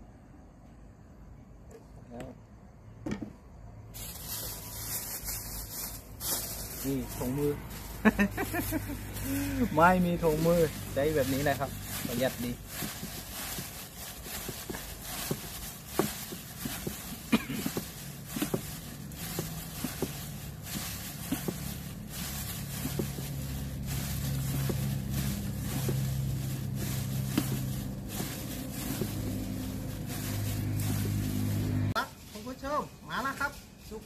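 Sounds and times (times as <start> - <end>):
salad mixed and squeezed by hand: 3.9 - 32.2.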